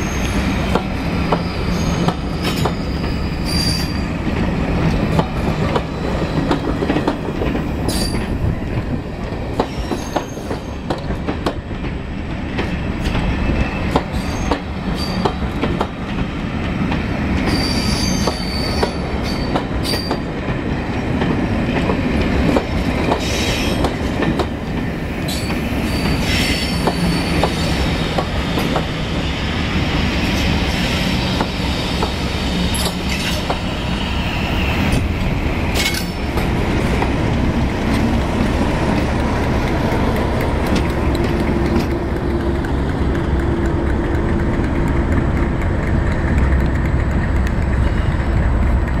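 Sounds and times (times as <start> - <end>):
train wheels squealing: 0.0 - 4.2, 7.8 - 8.4, 9.6 - 10.9, 12.6 - 15.5, 17.4 - 20.3, 23.1 - 24.0, 25.2 - 35.1
diesel locomotive engine running: 29.6 - 49.0.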